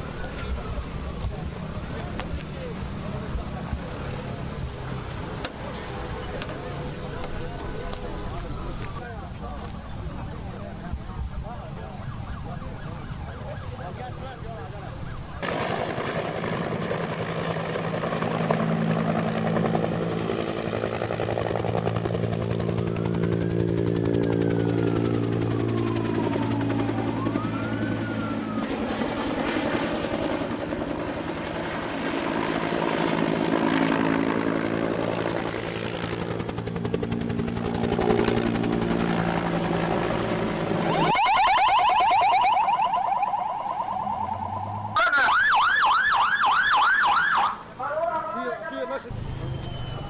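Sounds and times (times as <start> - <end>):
thin whistling tone: 49.2 - 50.0.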